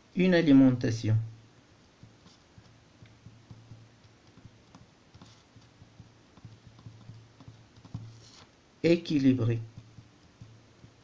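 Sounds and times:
pen writing on paper: 2.0s - 8.5s, 9.7s - 11.0s.

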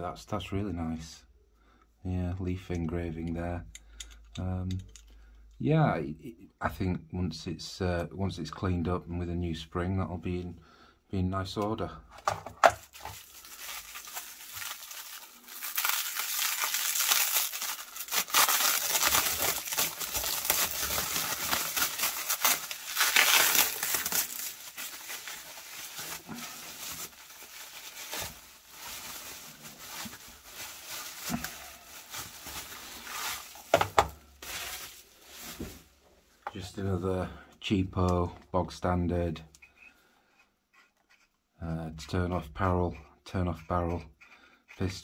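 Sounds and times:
plastic wrap crinkling: 12.2s - 36.0s.

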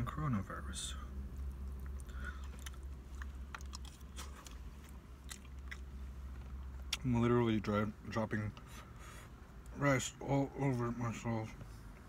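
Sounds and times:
steady low hum: 0.0s - 12.0s
chewing and biting food: 1.3s - 7.0s.

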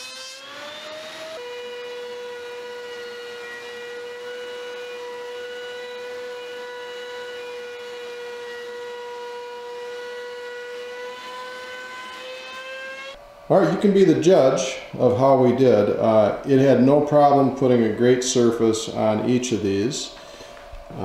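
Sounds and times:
planer motor whine: 0.0s - 13.2s.

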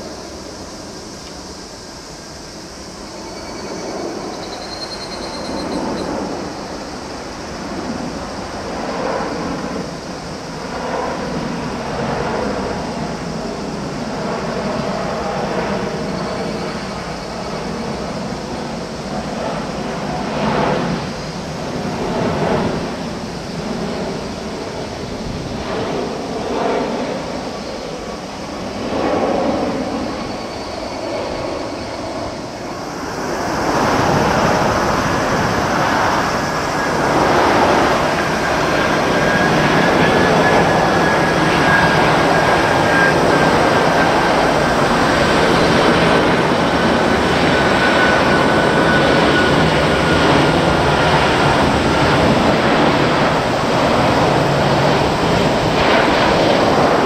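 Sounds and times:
faint high whine: 0.0s - 57.0s
jet engines roaring: 0.0s - 57.0s.

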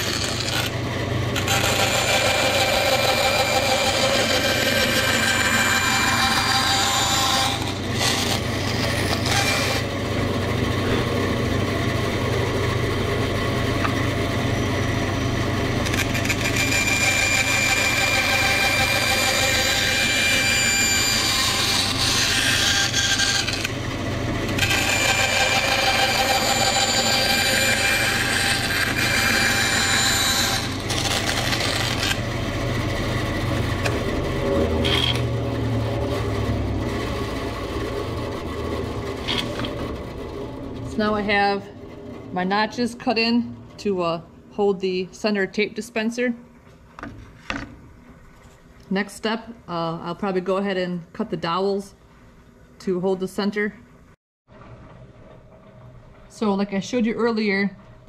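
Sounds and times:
bandsaw cutting board: 0.0s - 13.0s, 15.6s - 41.6s
motor hum: 0.0s - 44.6s.

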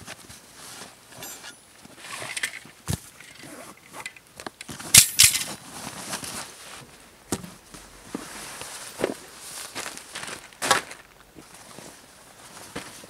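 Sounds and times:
buckles clinking: 1.1s - 5.6s
fabric rustling: 4.7s - 13.0s.

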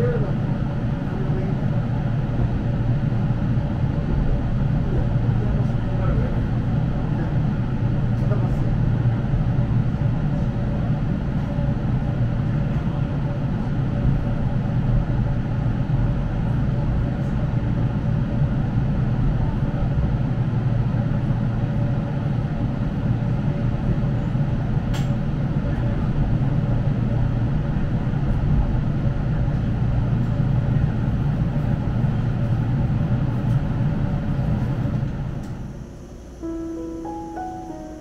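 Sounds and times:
faint steady hum: 35.6s - 38.0s.

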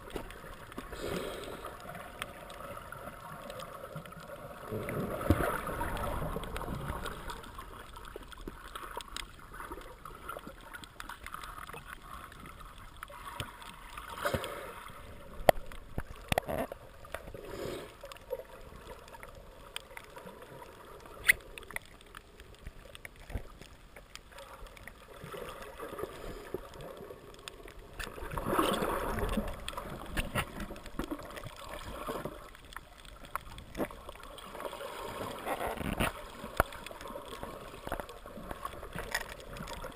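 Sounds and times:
small clicks and knocks: 15.4s - 17.2s.

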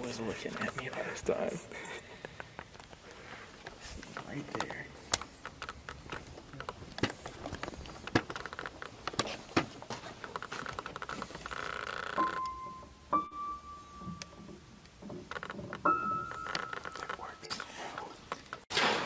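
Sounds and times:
scattered knocks and clicks: 3.6s - 12.9s, 14.0s - 18.6s
high piano notes: 12.2s - 14.7s.

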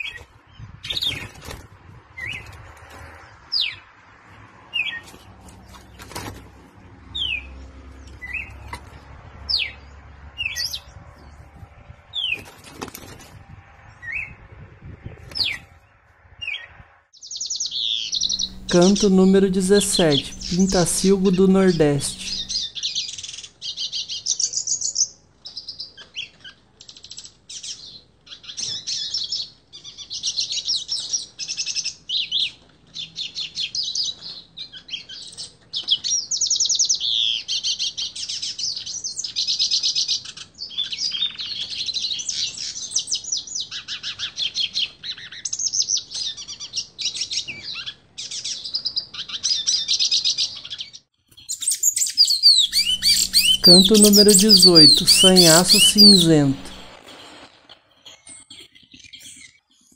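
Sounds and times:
bird twittering song: 17.2s - 19.0s, 51.4s - 56.9s.

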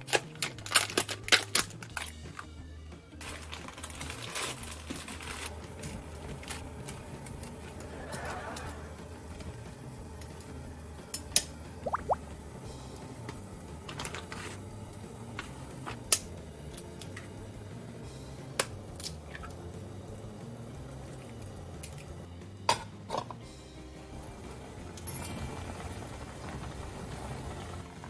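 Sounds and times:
pot simmering: 3.2s - 28.0s
eggs being cracked: 11.2s - 12.2s.

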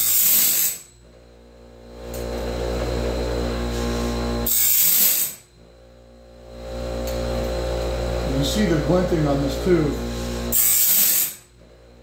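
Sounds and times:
grinding wheel hissing grind: 0.0s - 0.9s, 2.5s - 5.4s, 7.1s - 11.4s
grinder motor humming: 0.0s - 12.0s.

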